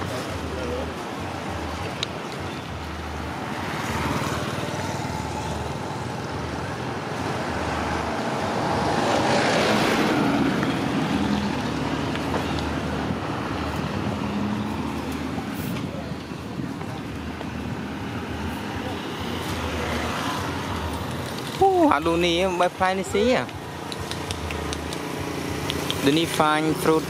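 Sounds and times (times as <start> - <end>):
road traffic noise: 0.0 - 27.0
vehicle passing close by: 3.3 - 15.7.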